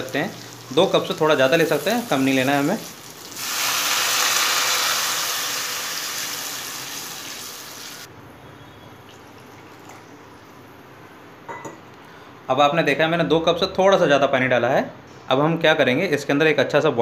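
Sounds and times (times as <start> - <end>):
vegetables simmering: 0.0 - 8.1
water hissing in hot oil: 0.0 - 8.1
water pouring: 0.0 - 8.1, 9.1 - 10.1.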